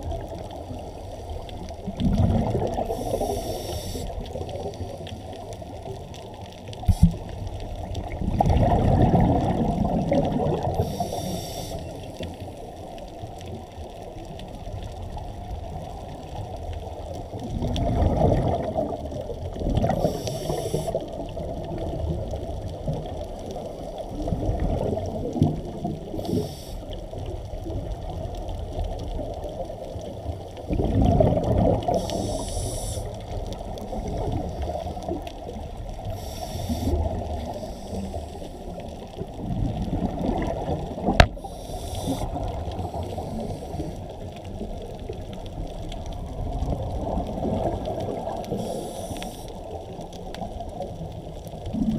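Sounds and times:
exhaled bubbles gurgling underwater: 0.0s - 51.9s
muffled water wash: 0.0s - 51.9s
regulator hiss: 2.9s - 4.3s, 10.8s - 12.1s, 20.0s - 21.0s, 26.2s - 26.9s, 31.9s - 33.3s, 36.0s - 38.7s, 41.4s - 44.0s, 48.5s - 49.6s.

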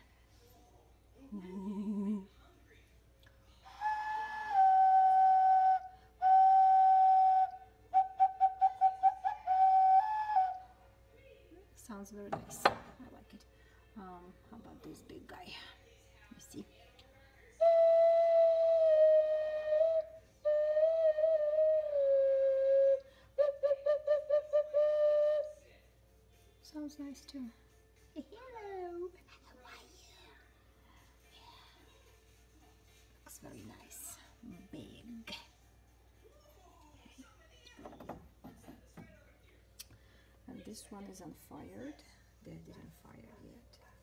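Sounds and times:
ocarina notes: 3.8s - 10.6s, 17.6s - 25.5s.

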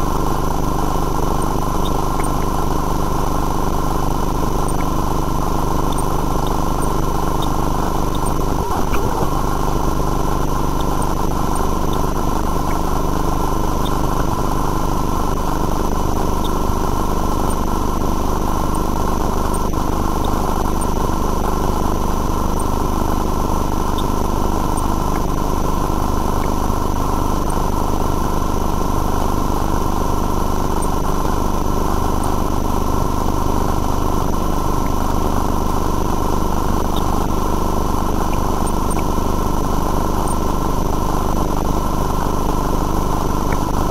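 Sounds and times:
high whine: 0.0s - 43.9s
machine hum: 0.0s - 43.9s.

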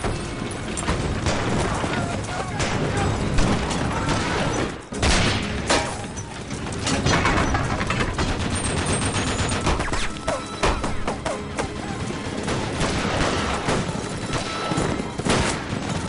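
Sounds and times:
gatling gun firing rapidly: 7.0s - 16.0s.

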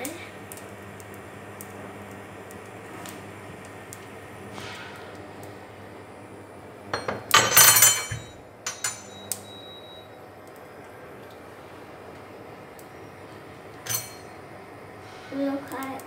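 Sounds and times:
utensils clattering on counter: 7.0s - 9.3s, 13.8s - 14.3s
clinks: 7.0s - 9.5s, 13.8s - 14.3s.

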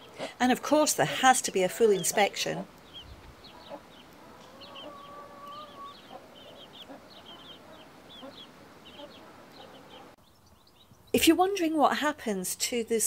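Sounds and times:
hen clucking softly: 1.0s - 10.2s
chicks peeping: 1.0s - 11.0s.

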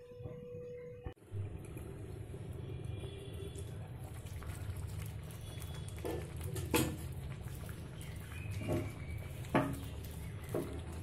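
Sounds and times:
food simmering and bubbling: 1.2s - 11.0s.

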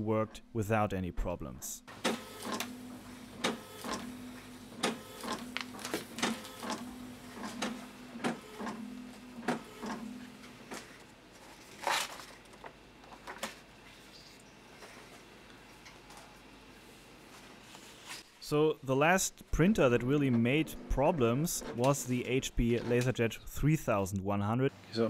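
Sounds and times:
printer motor hum: 1.9s - 11.2s
print head clicks and knocks: 3.4s - 4.1s, 4.7s - 8.8s, 9.4s - 10.1s
paper rustle: 5.5s - 6.3s, 11.4s - 12.7s.

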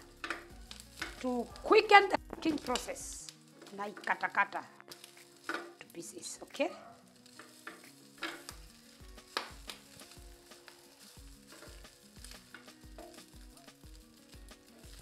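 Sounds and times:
background music with a beat: 0.0s - 3.8s, 7.4s - 15.0s
sausage sizzling in a pan: 0.0s - 15.0s
utensil scraping a pan: 7.3s - 8.6s, 11.3s - 13.3s.

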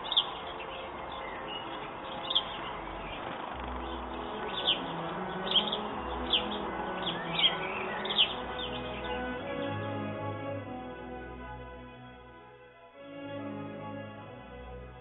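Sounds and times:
sparrow chirping: 0.0s - 9.8s
soft background music: 0.0s - 15.0s.

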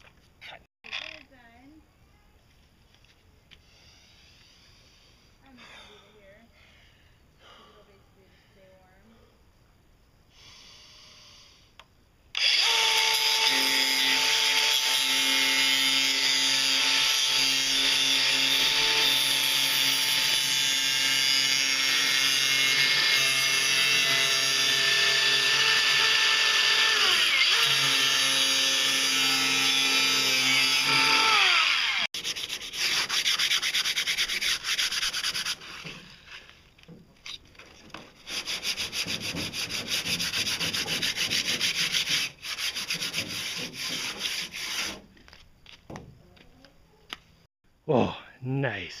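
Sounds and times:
angle grinder whining: 12.4s - 32.2s
sanding pad scrubbing fiberglass: 32.2s - 36.4s, 38.1s - 45.1s.

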